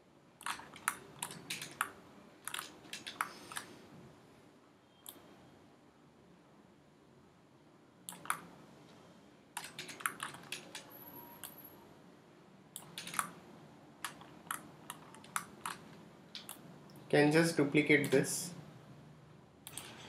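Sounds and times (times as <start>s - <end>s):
keyboard and mouse clicking: 0.4s - 3.7s, 8.1s - 8.5s, 9.6s - 11.6s, 12.8s - 13.4s, 14.0s - 17.0s, 19.6s - 20.0s.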